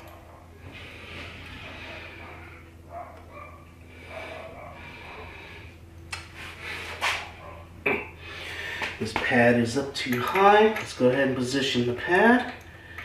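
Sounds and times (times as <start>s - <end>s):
faint steady hum: 0.0s - 13.0s
man breathing heavily: 0.5s - 2.9s, 3.6s - 7.4s, 8.1s - 9.0s.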